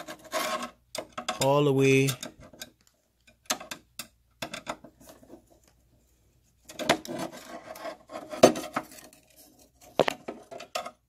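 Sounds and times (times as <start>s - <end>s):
metal tool scraping metal: 0.0s - 2.7s, 6.8s - 9.6s.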